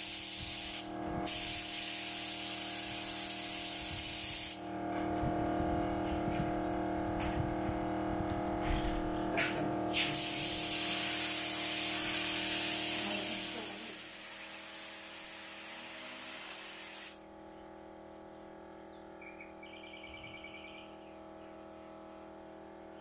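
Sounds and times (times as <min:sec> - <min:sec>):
paint spray gun hissing: 0:00.0 - 0:04.7, 0:09.9 - 0:17.2.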